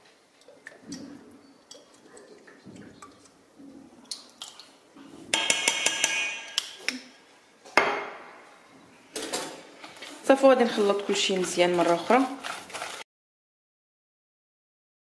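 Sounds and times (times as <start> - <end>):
metallic clinking on steel bowl: 5.4 - 6.8.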